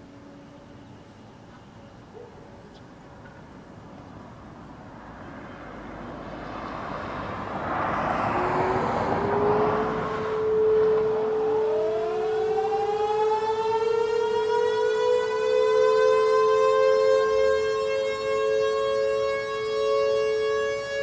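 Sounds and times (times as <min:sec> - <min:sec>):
steady siren tone: 0:00.0 - 0:01.3, 0:05.6 - 0:21.0.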